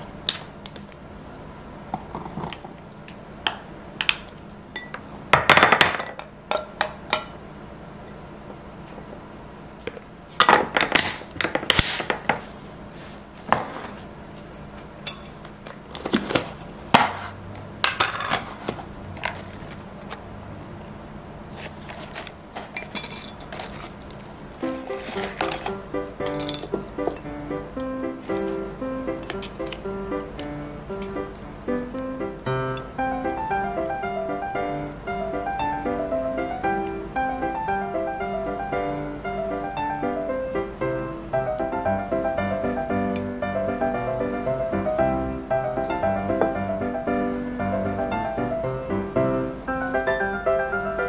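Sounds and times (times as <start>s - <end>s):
faint steady hum: 0.0s - 51.0s
kitchenware clinking and clattering: 22.6s - 24.0s, 24.9s - 27.2s.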